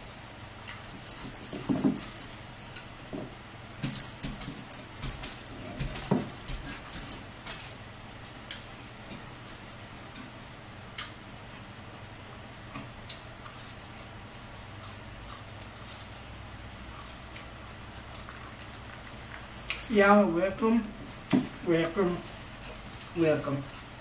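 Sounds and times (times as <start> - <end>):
forks clicking against plates: 0.7 - 3.0
chewing and mouth sounds: 10.9 - 19.9.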